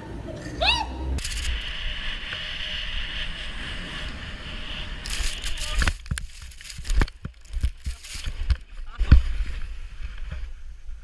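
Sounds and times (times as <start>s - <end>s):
knocks and scuffs in snow: 3.8s - 11.0s.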